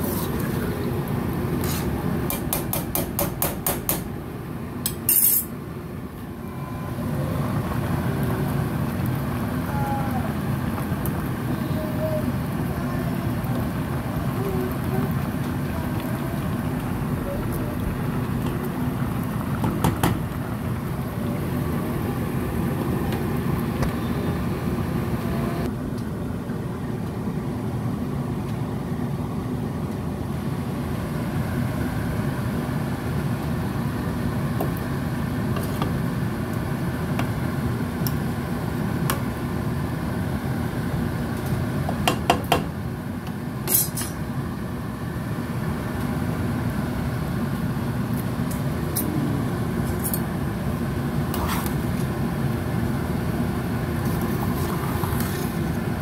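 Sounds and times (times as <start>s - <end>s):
steady low hum: 42.8s - 56.0s.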